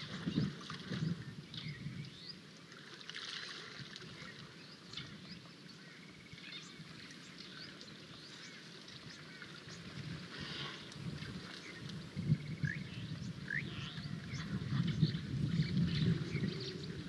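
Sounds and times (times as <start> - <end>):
elephant splashing in water: 2.7 - 5.3, 8.3 - 12.2.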